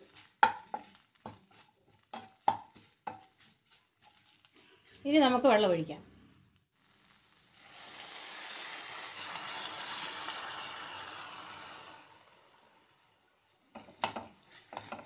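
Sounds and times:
water sizzling in hot pan: 0.0s - 4.7s, 6.6s - 15.0s
water pouring: 7.5s - 12.8s.

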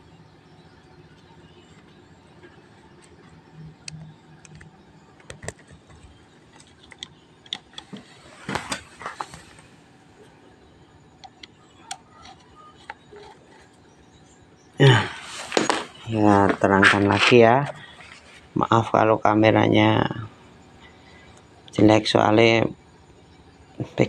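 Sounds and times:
clicks and taps of cable connectors: 3.8s - 8.0s.

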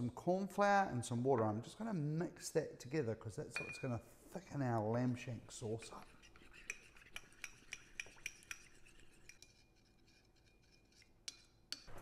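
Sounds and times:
teaspoon clinking in ceramic bowl: 3.6s - 3.9s, 6.6s - 9.6s.

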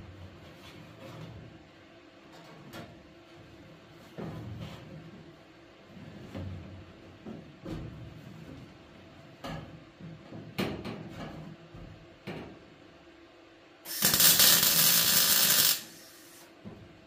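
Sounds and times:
mig welder arcing: 13.8s - 16.6s.

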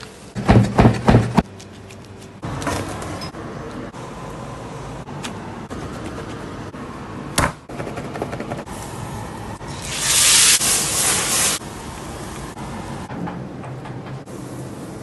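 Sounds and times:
fat sizzling in a hot pan: 9.7s - 11.6s.

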